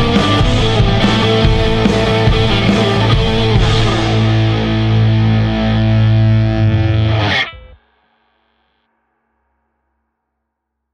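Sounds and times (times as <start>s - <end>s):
rock music with electric guitar: 0.0s - 7.8s.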